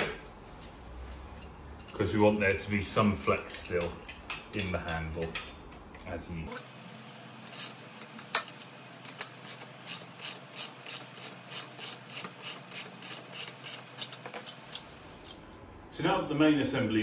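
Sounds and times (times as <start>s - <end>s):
ratchet wrench clicking: 9.0s - 15.4s.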